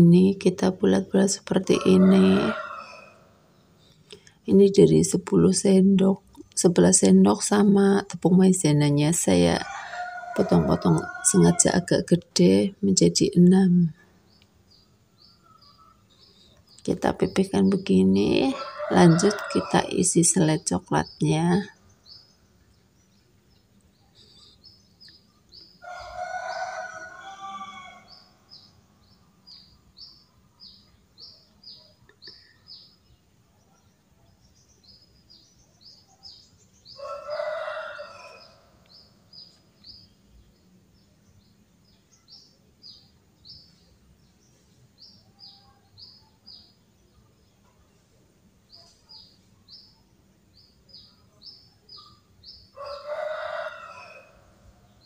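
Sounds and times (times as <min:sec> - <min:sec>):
small birds chirping: 0:00.0 - 0:55.0
rooster crowing: 0:01.5 - 0:03.4, 0:09.6 - 0:11.9, 0:18.4 - 0:20.0, 0:25.8 - 0:28.6, 0:36.9 - 0:39.0, 0:52.7 - 0:55.0.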